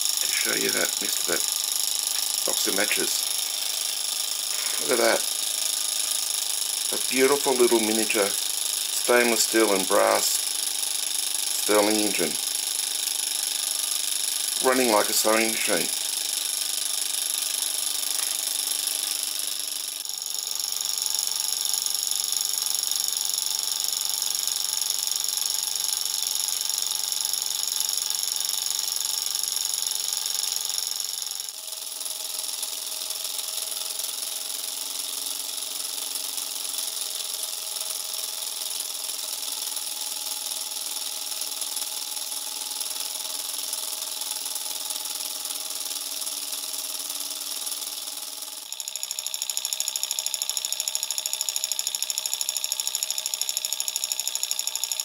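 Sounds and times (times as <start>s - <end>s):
small engine mechanical whir: 0.0s - 55.0s.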